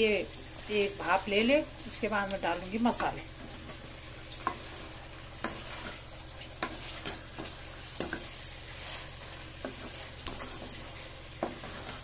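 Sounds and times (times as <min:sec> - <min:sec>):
vegetables sizzling in a pan: 0:00.0 - 0:12.0
wooden spatula scraping pan: 0:02.9 - 0:12.0.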